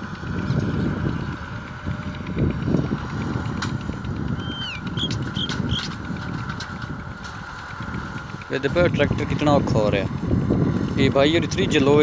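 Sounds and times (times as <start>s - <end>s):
distant tractor engine rumble: 0.0s - 12.0s
bird whistling and chirping: 4.4s - 5.9s.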